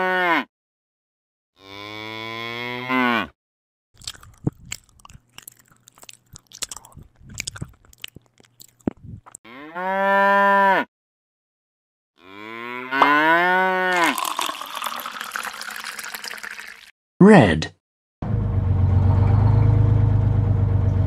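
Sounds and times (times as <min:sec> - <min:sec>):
cow mooing: 0:00.0 - 0:00.5, 0:01.6 - 0:03.3, 0:09.5 - 0:10.9, 0:12.2 - 0:14.0
milk streaming into bucket: 0:13.9 - 0:16.9.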